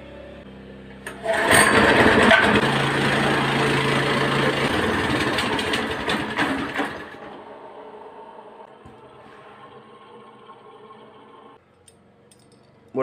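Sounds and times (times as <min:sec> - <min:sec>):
go-kart engine revving: 0:01.0 - 0:11.6.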